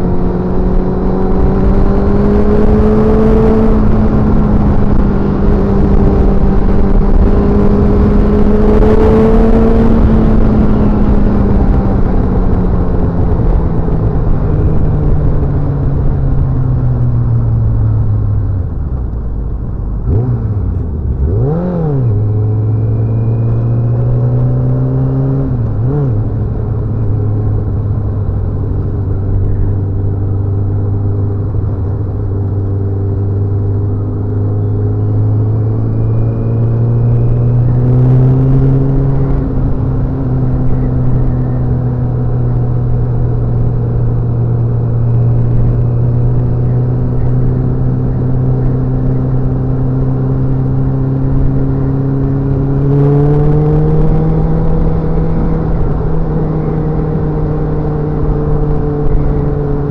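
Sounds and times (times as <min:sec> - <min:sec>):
motorcycle engine running: 0:00.0 - 0:59.9
motorcycle throttle blips: 0:20.0 - 0:59.9.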